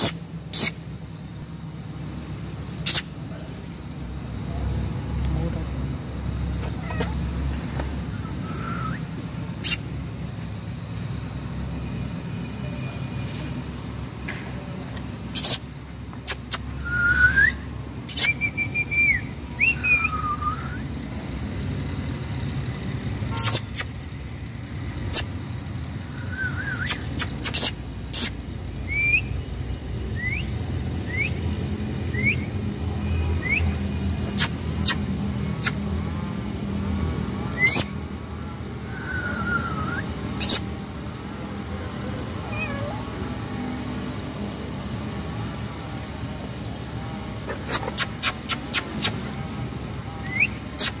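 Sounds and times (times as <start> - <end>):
road traffic rumble: 0.0 - 51.0
whistled chirps and glides: 8.1 - 9.8, 38.8 - 40.6
sharp clicks: 47.4 - 49.3.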